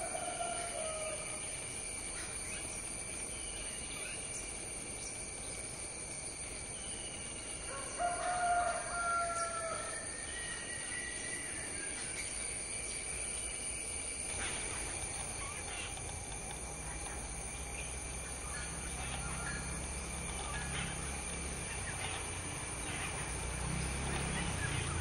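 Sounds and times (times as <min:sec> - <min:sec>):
rooster crowing: 0:00.0 - 0:01.4, 0:07.7 - 0:11.2
high insect drone: 0:00.0 - 0:25.0
faint bird chirps: 0:06.7 - 0:25.0.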